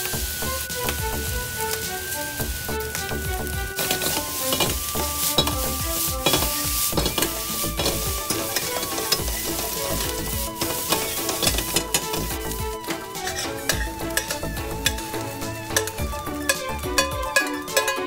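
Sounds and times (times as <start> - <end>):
rice sizzling in a frying pan: 0.0 - 18.0
metal spatula scraping pan: 3.7 - 18.0.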